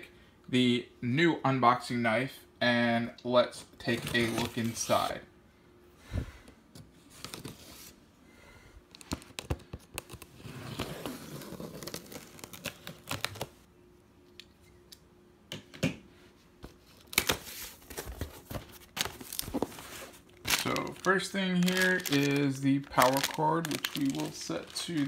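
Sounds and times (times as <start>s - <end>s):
cardboard tearing and scraping: 10.3s - 13.5s.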